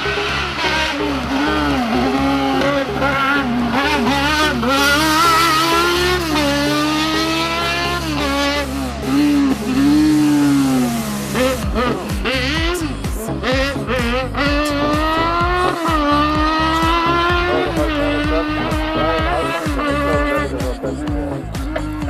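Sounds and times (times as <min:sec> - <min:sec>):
race car engine revving high: 0:00.0 - 0:22.0.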